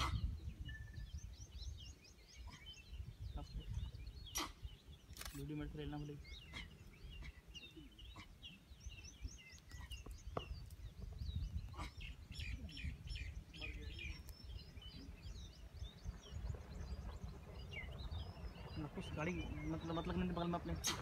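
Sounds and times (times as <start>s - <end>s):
small birds chirping: 0.0s - 21.0s
steady low rumble: 10.5s - 20.9s.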